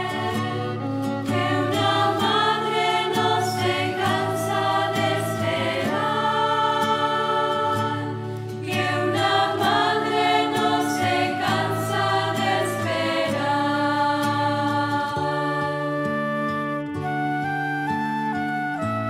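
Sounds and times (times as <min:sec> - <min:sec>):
choir singing a hymn: 0:00.0 - 0:16.3
sustained accompaniment: 0:00.0 - 0:17.9.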